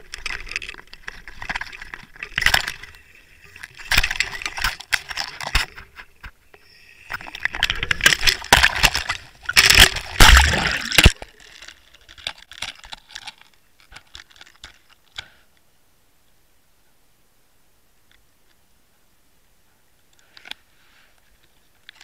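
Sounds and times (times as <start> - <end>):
water rushing and sloshing: 7.0 - 11.2.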